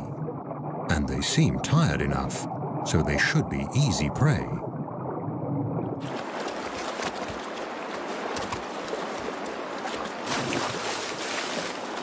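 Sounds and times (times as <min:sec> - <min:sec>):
sharp water splashes: 0:06.0 - 0:12.0
stream rushing over rocks: 0:06.0 - 0:12.0.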